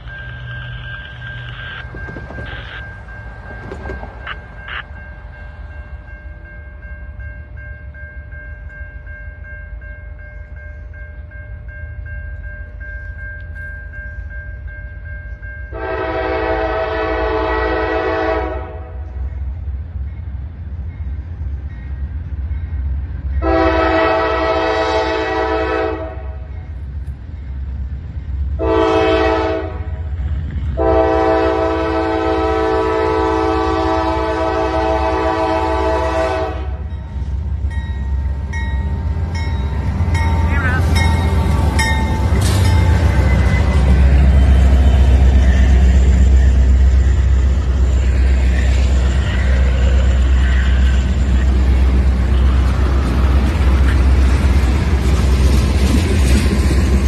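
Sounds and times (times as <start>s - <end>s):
low rumble of train: 0.0s - 57.0s
locomotive air horn blasts: 15.7s - 19.1s, 23.4s - 26.5s, 28.6s - 30.0s, 30.8s - 36.9s.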